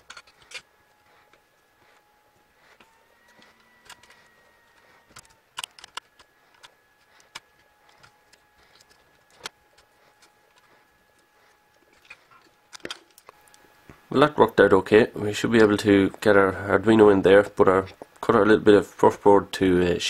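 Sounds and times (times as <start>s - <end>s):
faint high hum: 0.0s - 20.0s.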